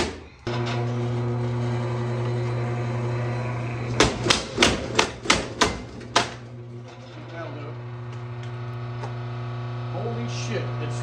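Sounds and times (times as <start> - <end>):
power hammer motor humming: 0.0 - 6.8
power hammer blows on metal box: 4.0 - 6.4.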